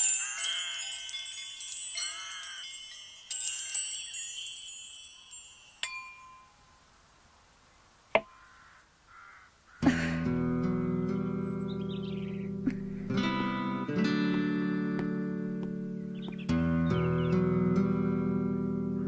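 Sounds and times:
high metallic chimes tinkling: 0:00.0 - 0:06.9.

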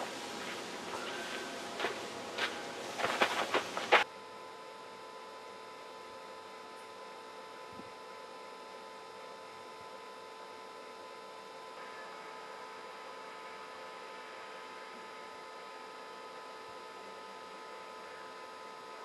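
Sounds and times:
outdoor noise: 0:00.0 - 0:04.1
electrical hum: 0:00.0 - 0:10.4.

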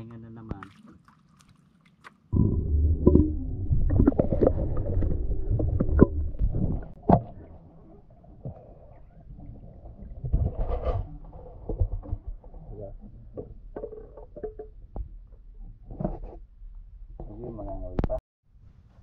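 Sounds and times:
faint underwater wash: 0:00.6 - 0:13.7
underwater low rumble: 0:02.3 - 0:18.2
sharp underwater knocks: 0:02.4 - 0:07.6.

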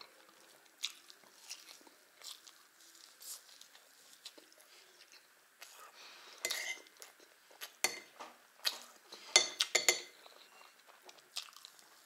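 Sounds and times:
teaspoon clinking on dish: 0:06.4 - 0:06.8, 0:07.8 - 0:08.1, 0:09.4 - 0:10.1.

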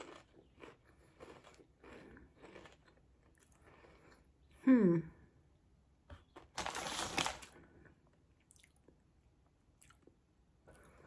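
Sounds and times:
chip bag rustling: 0:06.5 - 0:07.6.

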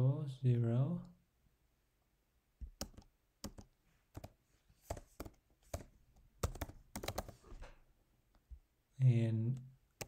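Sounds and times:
typing on keyboard: 0:02.6 - 0:07.4.

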